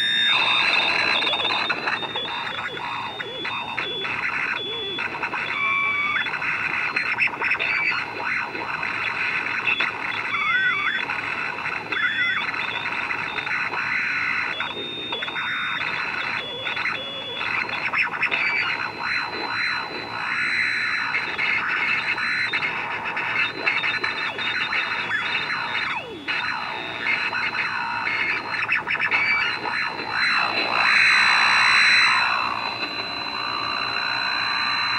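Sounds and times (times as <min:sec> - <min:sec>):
wavering looping whistles: 0:00.0 - 0:08.1, 0:08.8 - 0:34.9
high whine: 0:00.0 - 0:34.9
radio interference buzz: 0:00.0 - 0:34.9.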